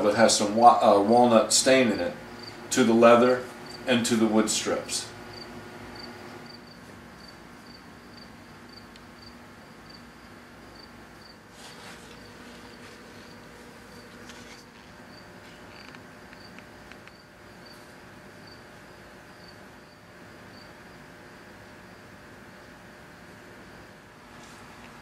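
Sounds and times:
brush scratching on wood: 0:11.5 - 0:13.4.

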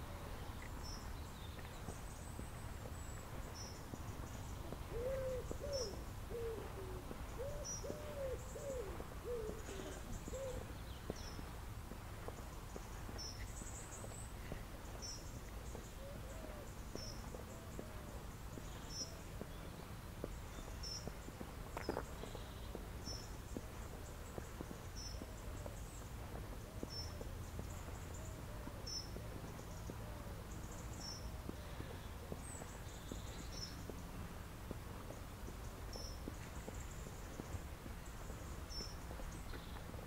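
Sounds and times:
pigeon cooing: 0:04.9 - 0:10.7.

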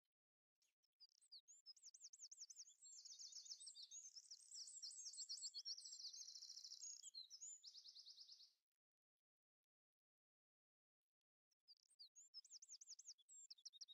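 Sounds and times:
songbird chirping and trilling: 0:01.0 - 0:08.6, 0:11.7 - 0:13.9.

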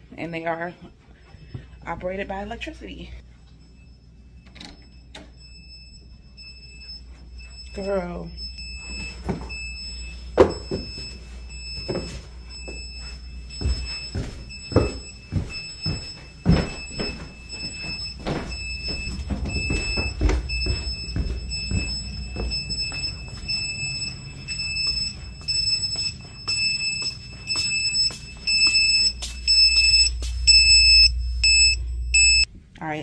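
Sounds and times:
alarm beeping: 0:01.1 - 0:32.5
low hum: 0:03.1 - 0:32.8
footsteps on wooden stairs: 0:10.4 - 0:23.6.

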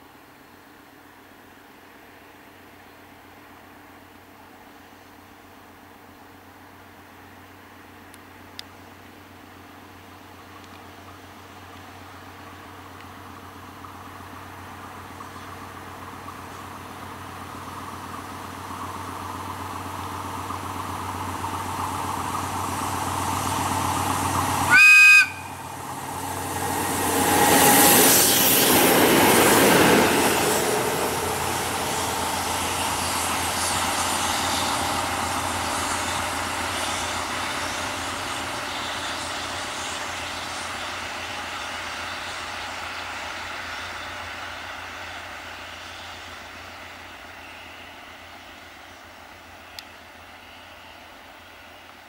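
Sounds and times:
diesel locomotives passing: 0:00.0 - 0:52.0
locomotive horn blast: 0:24.7 - 0:25.6.

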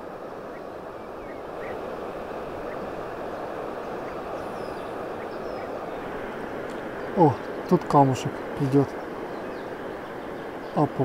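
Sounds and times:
rushing outdoor background noise: 0:00.0 - 0:11.0
faint bird chirps: 0:00.4 - 0:01.8, 0:02.6 - 0:06.0.

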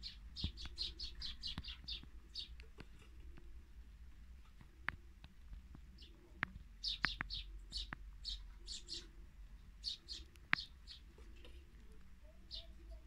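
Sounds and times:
high bird chirps: 0:00.0 - 0:02.6, 0:06.8 - 0:09.1, 0:09.8 - 0:11.1, 0:12.2 - 0:13.0.

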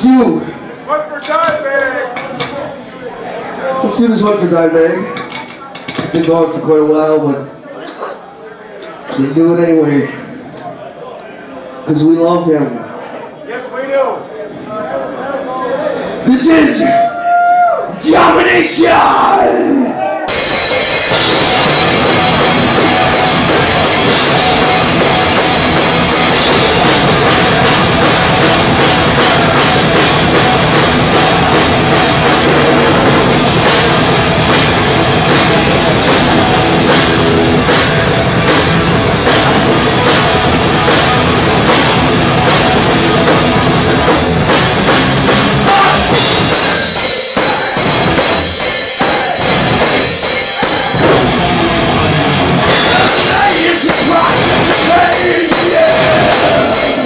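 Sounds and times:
drum kit kicks and cymbals: 0:20.3 - 0:57.0
thrash metal band playing: 0:20.3 - 0:57.0.

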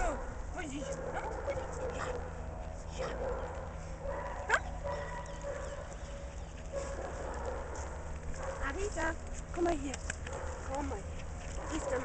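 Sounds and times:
dog yelping: 0:04.1 - 0:07.7.

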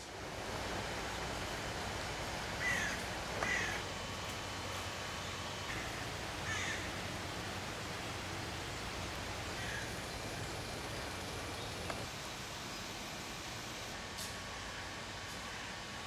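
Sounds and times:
steady background noise: 0:00.0 - 0:16.0
bird calling: 0:02.6 - 0:03.8, 0:05.7 - 0:07.3, 0:09.4 - 0:12.0.

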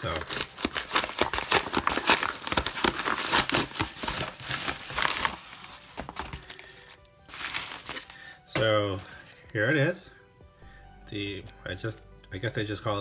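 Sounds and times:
paper mailer crinkling: 0:00.0 - 0:09.5.

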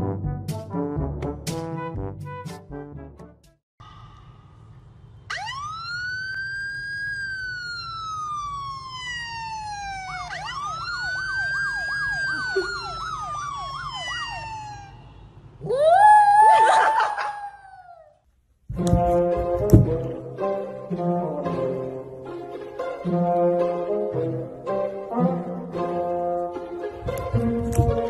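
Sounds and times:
police siren from a phone: 0:05.3 - 0:15.2.

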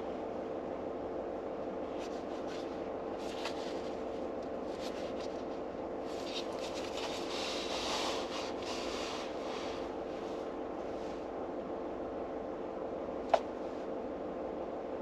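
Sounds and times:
book pages rustling: 0:01.9 - 0:09.9.

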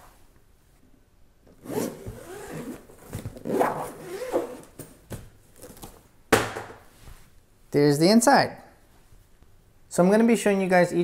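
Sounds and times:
zipper being pulled open: 0:01.6 - 0:04.8.

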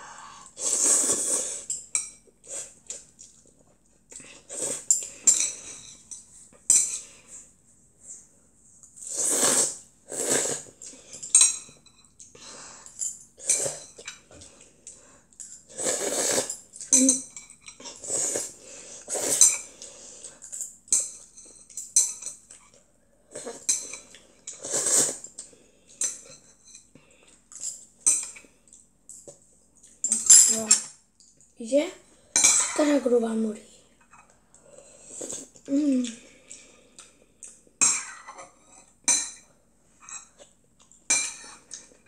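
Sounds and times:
child slurping noodles: 0:00.0 - 0:01.7, 0:04.3 - 0:04.9, 0:09.0 - 0:11.0, 0:15.7 - 0:16.6, 0:17.8 - 0:20.2, 0:24.5 - 0:25.3.

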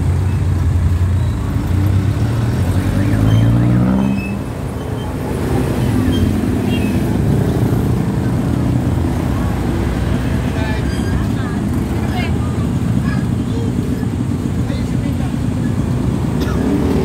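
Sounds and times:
motorcycle engines: 0:00.0 - 0:17.0.

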